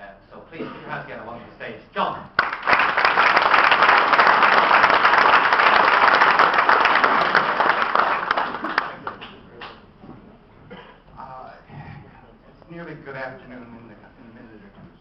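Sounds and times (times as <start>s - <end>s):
audience applauding: 2.4s - 9.8s.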